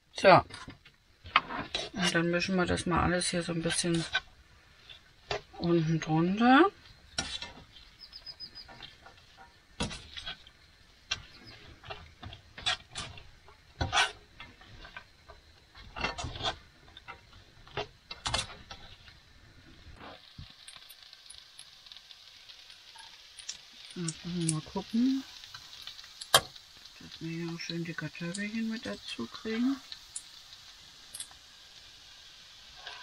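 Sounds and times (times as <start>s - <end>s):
faint sizzling hiss: 0.0s - 33.0s
utensil scraping frying pan: 0.5s - 19.2s, 32.7s - 33.0s.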